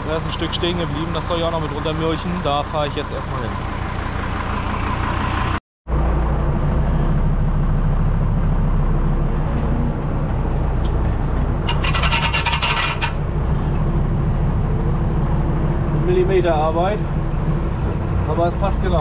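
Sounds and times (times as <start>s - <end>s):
tractor diesel engine running: 0.0s - 19.0s
short metallic rattle: 10.9s - 13.4s.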